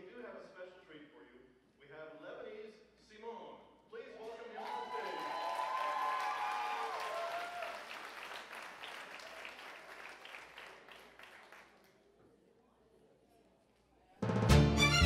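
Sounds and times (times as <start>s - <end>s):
audience applause: 4.2s - 11.9s.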